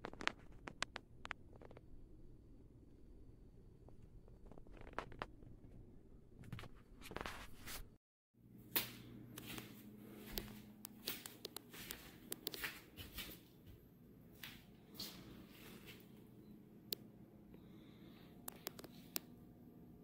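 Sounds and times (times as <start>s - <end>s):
low hum: 0.0s - 12.5s.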